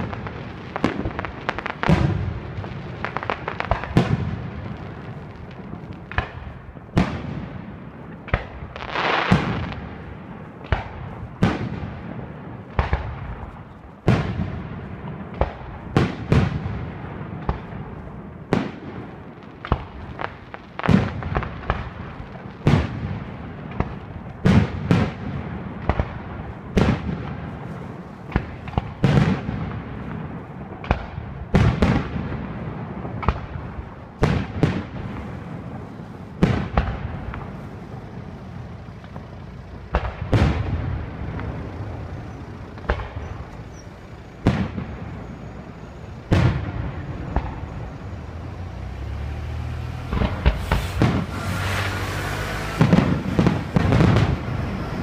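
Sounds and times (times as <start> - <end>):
fireworks bangs with rumble: 0.0 - 55.0.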